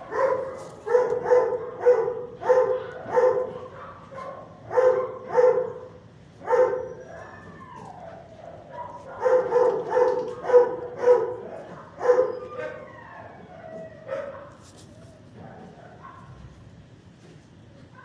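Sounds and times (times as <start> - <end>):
dog barking: 0.0 - 7.5, 8.1 - 12.9, 14.0 - 14.6, 15.4 - 16.5
dog howling call: 6.5 - 14.5.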